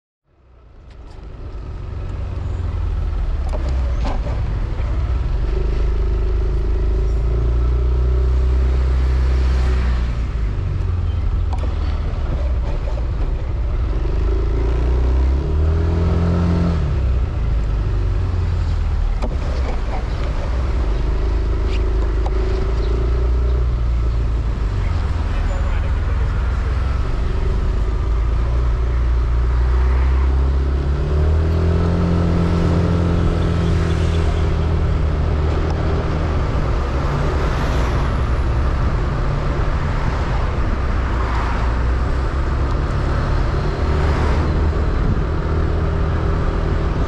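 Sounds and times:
road noise: 0:00.2 - 0:47.0.

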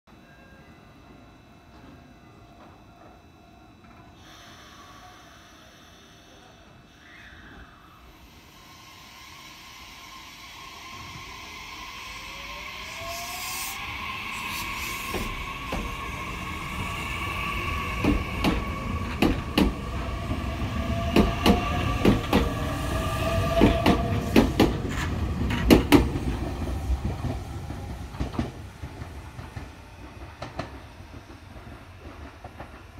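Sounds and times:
electric train motors whining: 0:03.8 - 0:31.1
train wheels clacking over rail joints: 0:23.6 - 0:26.2.

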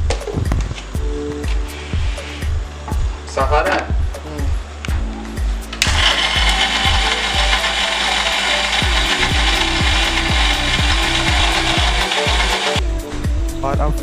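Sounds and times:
electric mixer grinder grinding: 0:05.8 - 0:12.8.

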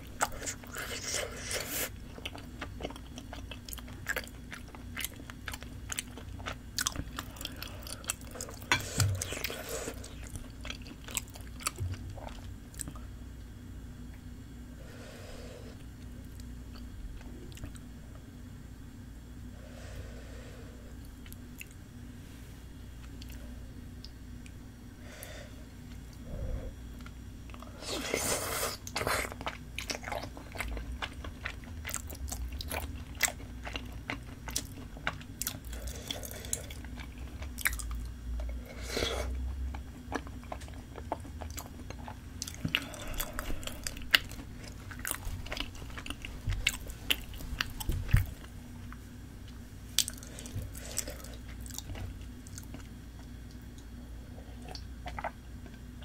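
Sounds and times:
wet chewing mouth sounds: 0:25.9 - 0:53.8, 0:54.6 - 0:55.8.

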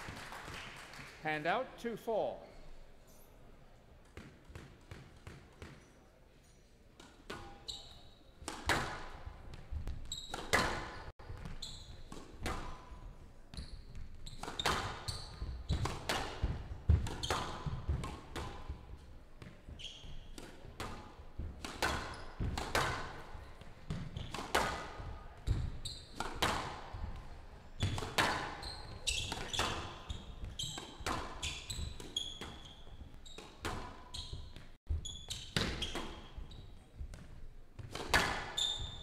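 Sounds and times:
court shoes squeaking: 0:04.0 - 0:39.0
squash ball cracking off racquets: 0:20.3 - 0:27.1, 0:27.8 - 0:32.6, 0:37.1 - 0:38.6.

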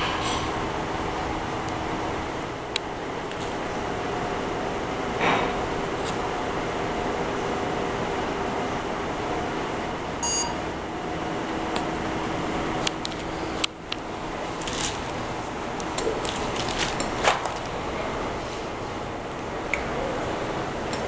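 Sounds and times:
steady background hum: 0:00.0 - 0:21.0
short electronic beep: 0:10.2 - 0:10.6.

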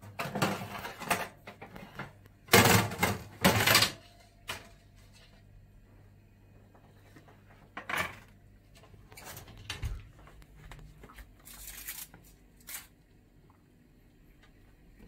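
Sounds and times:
aluminium foil crinkling: 0:11.1 - 0:13.0.

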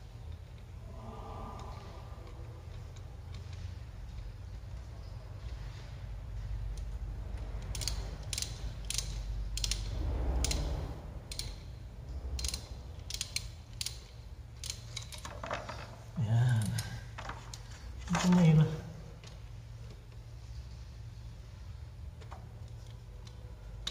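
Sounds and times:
ratchet wrench clicking: 0:06.8 - 0:15.4.

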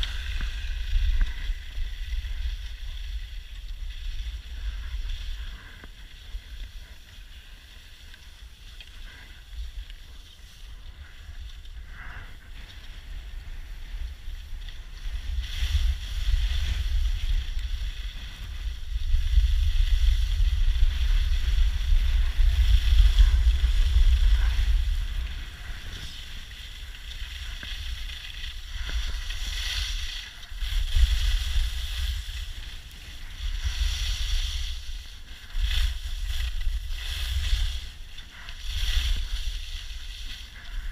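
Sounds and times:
wind buffeting microphone: 0:00.0 - 0:07.5, 0:09.1 - 0:40.9
skis scraping on packed snow: 0:00.0 - 0:40.9.

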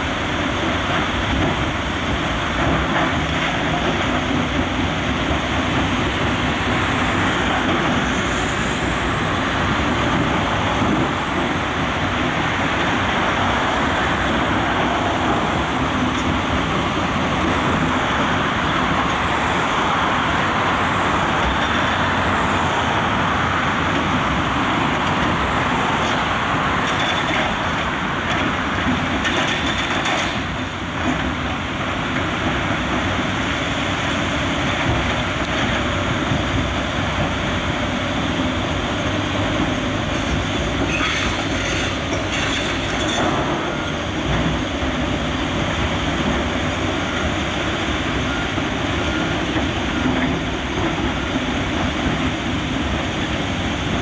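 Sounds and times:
excavator engine and hydraulics: 0:00.0 - 0:54.0.

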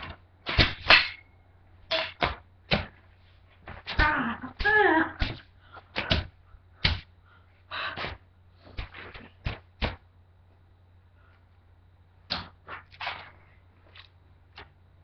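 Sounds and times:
broom whacks: 0:00.0 - 0:01.2, 0:01.9 - 0:07.1, 0:08.0 - 0:10.0
person yelling: 0:04.0 - 0:05.2.

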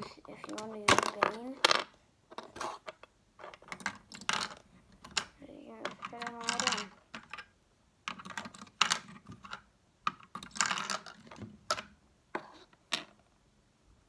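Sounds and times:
plastic pieces scraping: 0:00.3 - 0:07.5
plastic bricks clicking: 0:00.4 - 0:07.5, 0:08.1 - 0:12.0.

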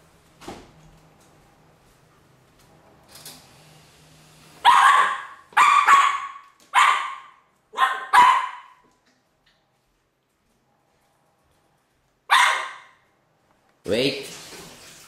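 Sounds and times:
small dog barking: 0:04.6 - 0:08.8, 0:12.3 - 0:13.0.

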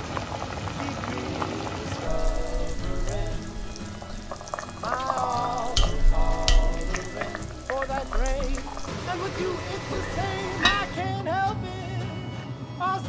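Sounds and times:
soup bubbling in a pot: 0:00.0 - 0:11.0
metal tongs clicking on pot: 0:03.6 - 0:09.0.

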